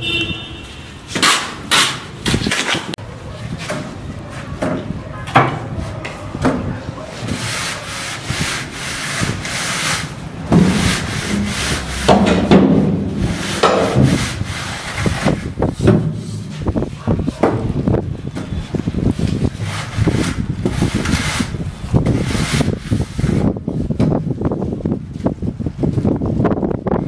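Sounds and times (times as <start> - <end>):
straight edge scraping wet cement: 7.0 - 16.9, 18.4 - 23.5.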